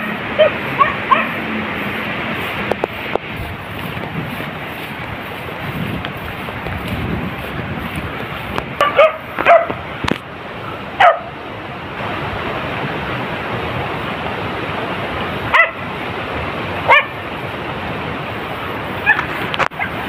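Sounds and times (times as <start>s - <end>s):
dog yelping barks: 0.0s - 1.4s, 8.8s - 9.8s, 11.0s - 11.3s, 15.5s - 15.8s, 16.9s - 17.2s, 19.0s - 20.0s
wind noise on microphone: 0.0s - 20.0s.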